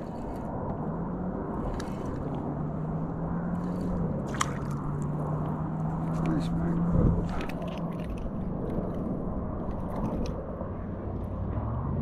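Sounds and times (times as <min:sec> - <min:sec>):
fish splashing at the surface: 0:03.7 - 0:05.3.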